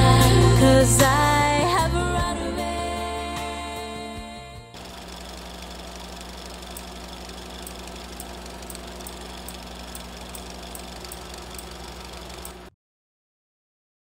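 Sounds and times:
light regular ticking: 4.8s - 12.7s
machine hum: 4.8s - 12.7s.

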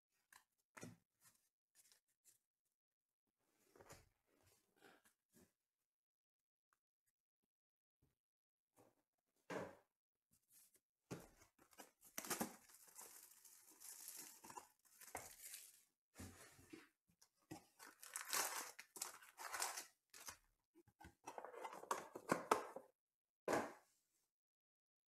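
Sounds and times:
tearing cardboard and wrapping: 11.8s - 15.8s, 17.8s - 20.4s
foil packs rustling: 12.2s - 15.8s, 17.8s - 20.4s.

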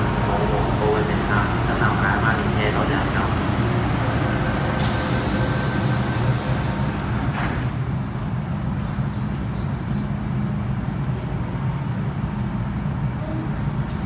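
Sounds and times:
train low hum: 0.0s - 14.0s
train door hiss: 4.6s - 7.8s.

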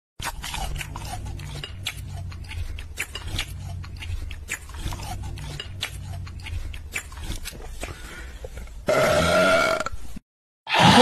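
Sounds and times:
wet mouth clicks and smacks: 1.7s - 4.8s, 5.6s - 8.0s.

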